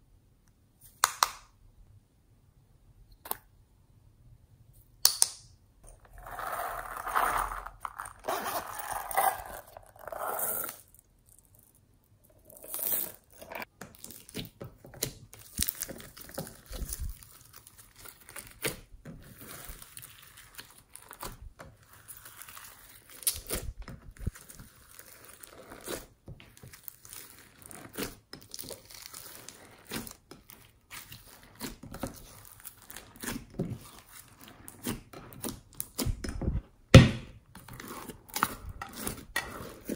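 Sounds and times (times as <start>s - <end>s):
hands squishing crunchy slime: 13.9s - 36.2s.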